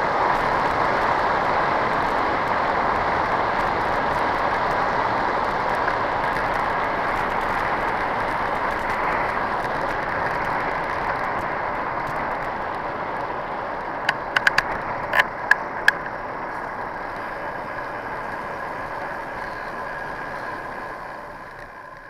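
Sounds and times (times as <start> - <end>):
wind and tyre rush: 0.0 - 22.0
sharp rattling clicks: 14.0 - 16.1
faint steady tone: 16.6 - 22.0.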